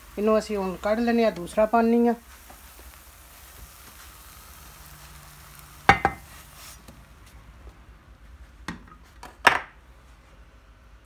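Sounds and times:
oil sizzling in frying pan: 0:00.0 - 0:07.6
spatula knocks: 0:05.9 - 0:06.2.

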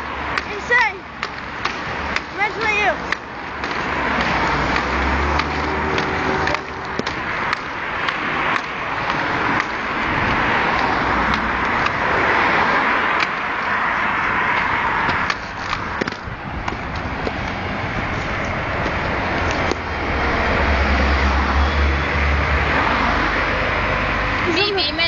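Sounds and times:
skate wheels rolling on pavement: 0:00.0 - 0:25.0
skate scuffs and clicks: 0:01.2 - 0:12.0, 0:14.5 - 0:19.8.

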